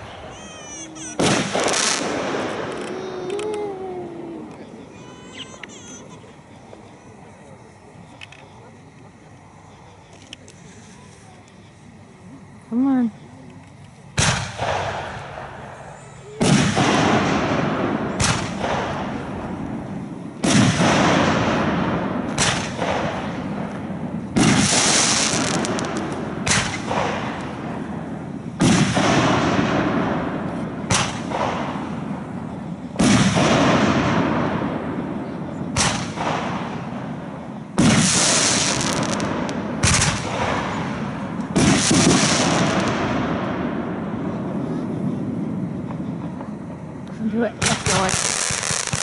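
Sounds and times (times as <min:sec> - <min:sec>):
firework booms echoing: 0:00.0 - 0:06.2, 0:14.1 - 0:49.0
sharp firework report: 0:00.0 - 0:49.0.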